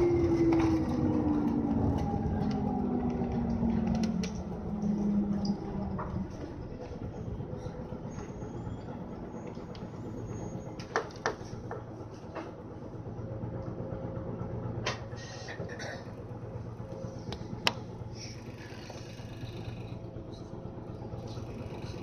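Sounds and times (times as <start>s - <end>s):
bus engine drone: 0.0s - 22.0s
bus body rattling and knocking: 9.0s - 13.0s.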